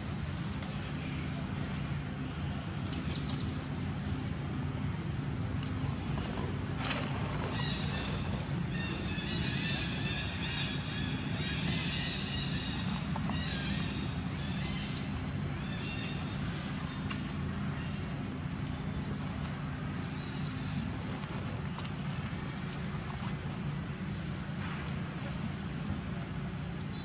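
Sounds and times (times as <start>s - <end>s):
steady low hum: 0.0s - 27.0s
birds chirping: 6.2s - 27.0s.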